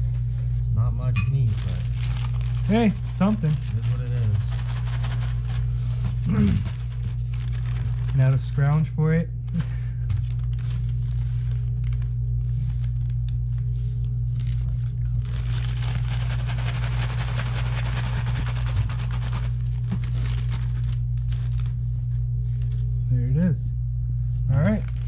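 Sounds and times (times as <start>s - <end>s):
steady low hum: 0.0s - 25.0s
plastic bag crinkling: 1.2s - 8.8s, 9.5s - 22.9s, 24.8s - 25.0s
bag shaken with crumbs rustling: 1.3s - 8.7s, 14.4s - 21.7s.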